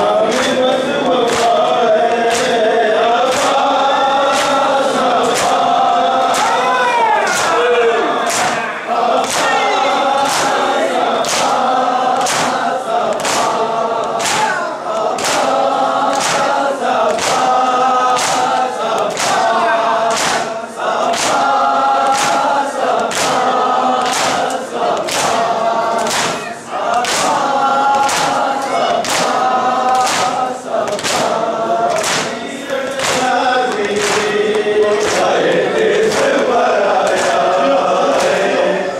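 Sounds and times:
men chanting in unison: 0.0 - 38.9.

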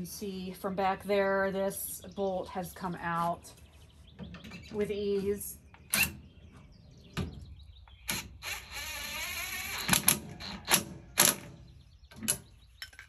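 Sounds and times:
sharp metal clicks and knocks: 9.8 - 13.0.

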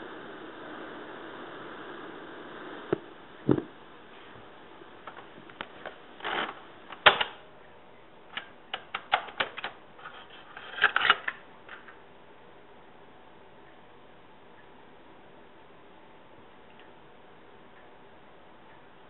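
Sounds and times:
low tape hiss: 0.0 - 19.0
sharp clicks and crackling: 5.0 - 7.4, 8.3 - 12.0.

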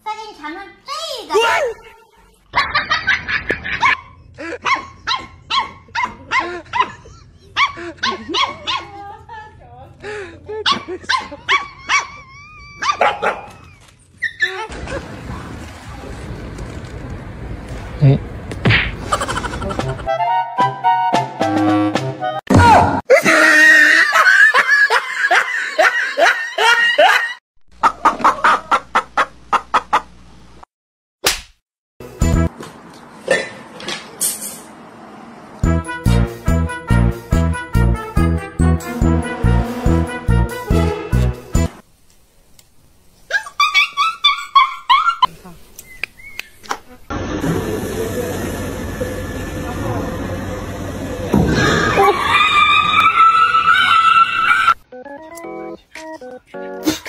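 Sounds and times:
person laughing: 2.6 - 4.7, 6.2 - 8.4, 19.0 - 20.1, 23.1 - 28.8
puppy yapping: 3.7 - 7.0, 10.7 - 14.7.

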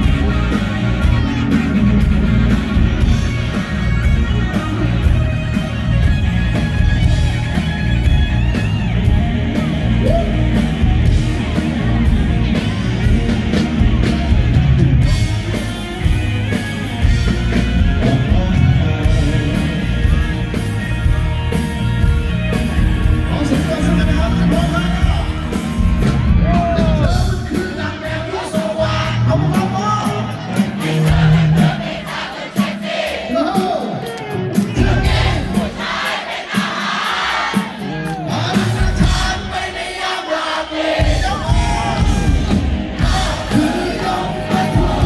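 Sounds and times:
live rock band playing: 0.0 - 40.0, 40.7 - 45.0
drums hitting steadily: 0.0 - 40.2, 40.9 - 45.0
man singing: 17.9 - 20.3, 26.4 - 31.0, 41.0 - 45.0.

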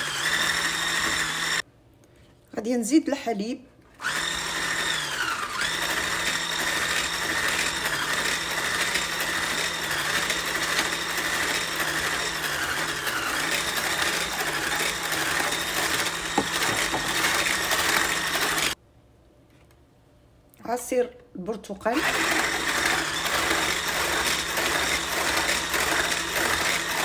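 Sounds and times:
stick blender whisking batter: 0.0 - 1.6, 4.0 - 18.8, 22.0 - 27.0.

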